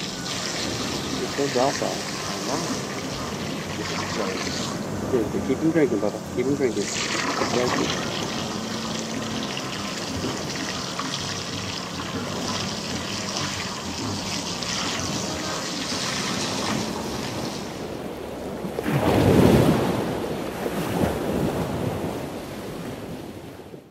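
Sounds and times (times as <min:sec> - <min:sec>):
water splashing from a hose: 0:00.0 - 0:22.1
wind gusting on microphone: 0:14.9 - 0:23.8.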